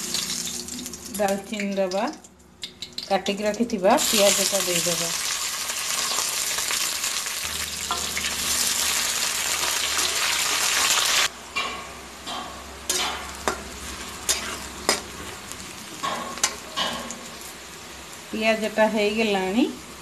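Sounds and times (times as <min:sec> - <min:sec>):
onions sizzling in hot oil: 0:00.0 - 0:02.0, 0:02.9 - 0:11.3, 0:12.9 - 0:20.0
metal spatula scraping a pan: 0:12.9 - 0:15.2.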